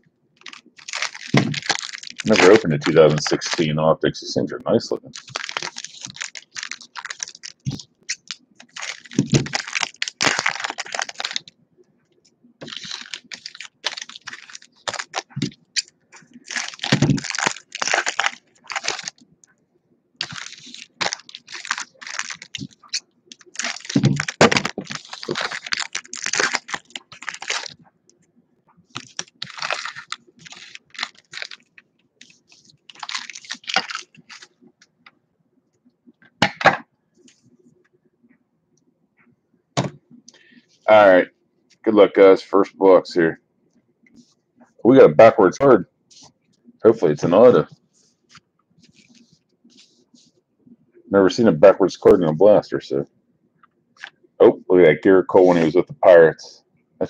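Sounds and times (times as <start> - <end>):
foil wrappers tearing and crinkling: 0.4 - 3.7, 5.1 - 11.5, 12.6 - 19.2, 20.2 - 27.8, 28.9 - 34.6.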